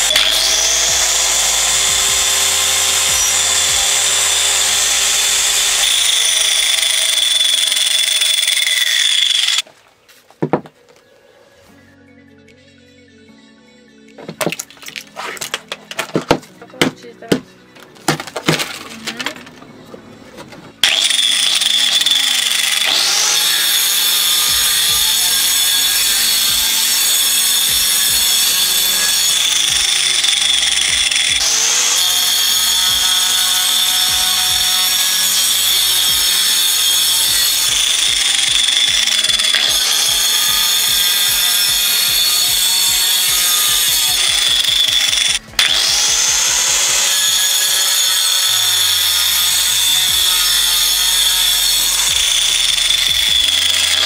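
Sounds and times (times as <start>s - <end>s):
angle grinder cutting ice: 0.0s - 9.6s, 20.8s - 54.0s.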